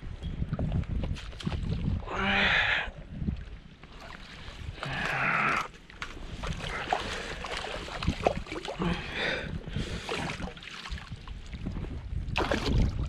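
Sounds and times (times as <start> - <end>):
wind rumbling on microphone: 0.0 - 13.0
water splashing and sloshing: 0.4 - 13.0.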